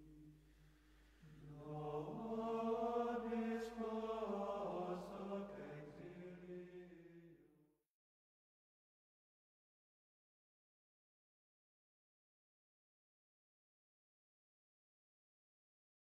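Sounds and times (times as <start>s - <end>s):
slow vocal chanting: 0.0s - 7.6s.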